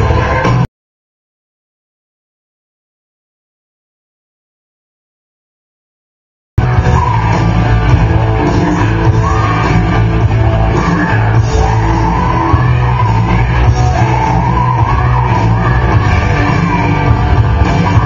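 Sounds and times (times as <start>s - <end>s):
loud rock music: 0.0s - 0.7s, 6.6s - 18.0s.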